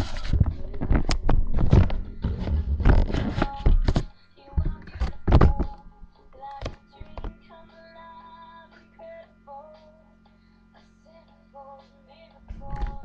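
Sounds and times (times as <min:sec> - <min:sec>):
faint pop music: 0:00.0 - 0:13.0
loud thumps and knocks: 0:00.3 - 0:05.7.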